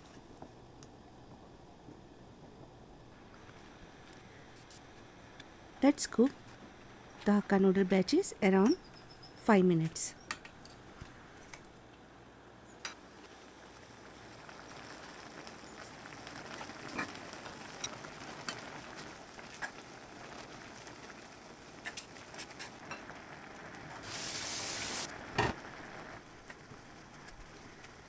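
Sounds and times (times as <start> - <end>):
water boiling with bubbling: 0.0 - 8.0, 12.7 - 28.0
loud hiss: 24.0 - 26.0.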